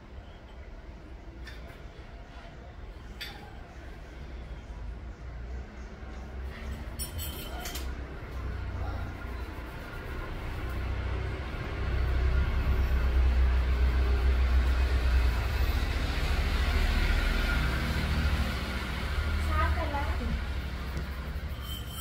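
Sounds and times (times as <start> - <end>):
vehicle passing: 7.9 - 21.8.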